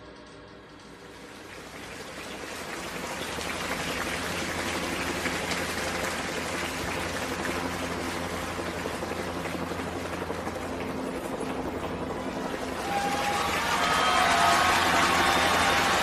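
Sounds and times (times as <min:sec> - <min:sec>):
rain-like hiss in music: 0:00.8 - 0:09.4, 0:12.4 - 0:16.0.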